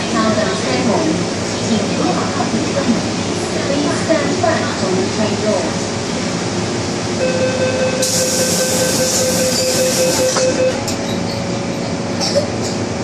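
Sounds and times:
train background hum: 0.0s - 13.0s
train door warning tone: 7.2s - 11.9s.

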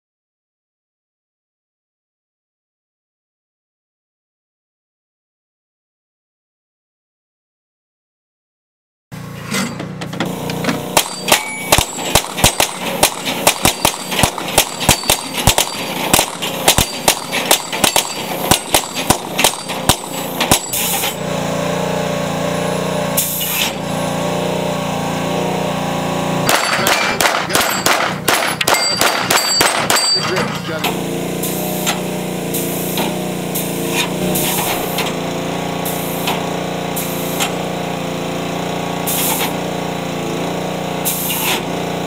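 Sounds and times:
pistol shots: 11.0s - 20.6s, 26.5s - 30.4s
ringing steel plates: 11.0s - 21.0s, 26.5s - 30.9s.

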